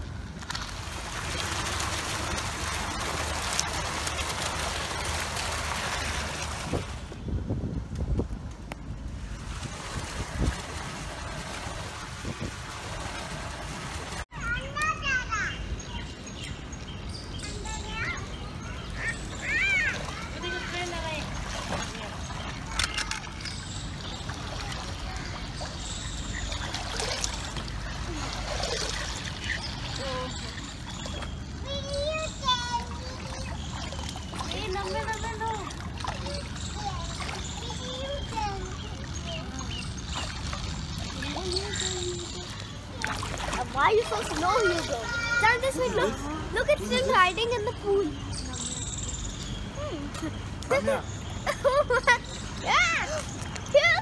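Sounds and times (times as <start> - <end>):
water gushing into a pool: 0.7 - 7.0, 9.3 - 14.2, 24.0 - 31.2, 32.5 - 45.8.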